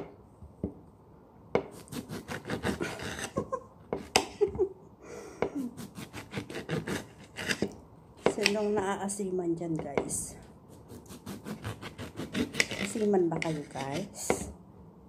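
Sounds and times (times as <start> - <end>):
knife sawing through lemon: 1.8 - 3.5, 5.8 - 7.7, 10.7 - 14.3.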